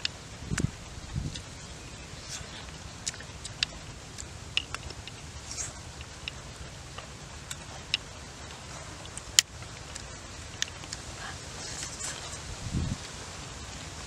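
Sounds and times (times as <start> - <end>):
low background noise: 0.0 - 14.0
person chewing food: 2.2 - 12.3.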